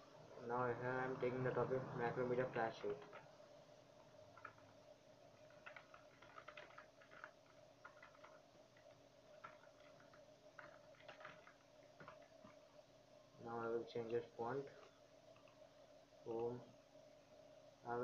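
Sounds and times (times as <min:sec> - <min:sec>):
faint steady hum: 0:00.0 - 0:18.0
keyboard typing clicks: 0:05.4 - 0:12.3.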